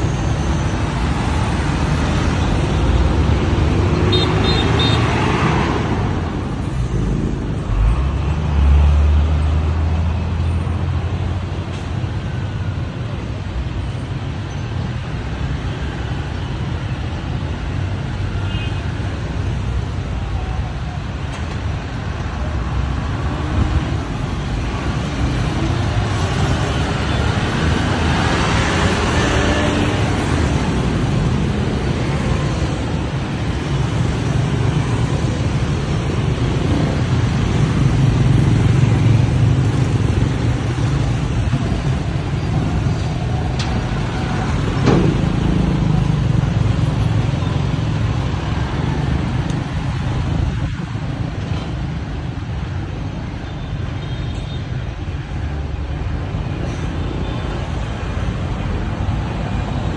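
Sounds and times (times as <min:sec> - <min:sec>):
cars and trucks passing: 0:00.0 - 0:59.9
motorbikes and scooters passing: 0:22.4 - 0:52.4.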